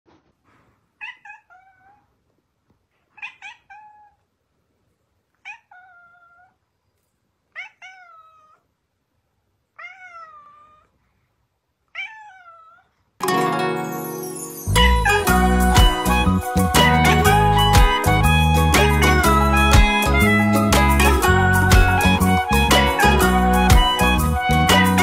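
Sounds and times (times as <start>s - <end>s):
cat meowing: 1.0s - 2.1s, 3.1s - 4.2s, 5.4s - 6.6s, 7.5s - 8.7s, 9.7s - 11.0s, 11.9s - 12.9s.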